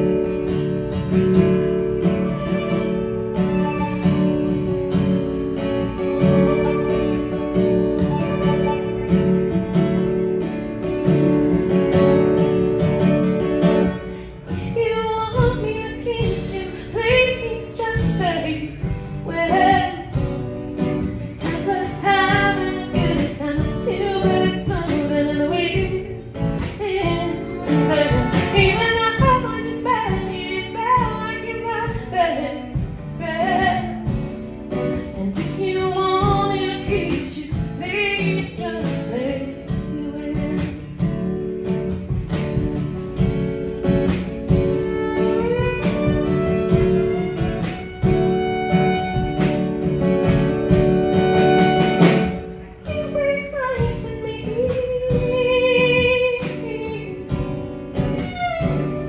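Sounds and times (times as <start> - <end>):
fiddle: 0.0 - 42.7, 43.4 - 59.0
drum kit: 0.0 - 59.0
strummed acoustic guitar: 0.0 - 59.0
woman singing: 13.7 - 41.4, 44.8 - 59.0.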